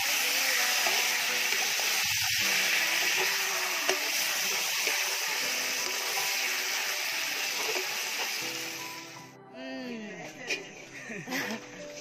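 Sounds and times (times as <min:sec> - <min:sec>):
food sizzling in a pan: 0:00.0 - 0:09.3.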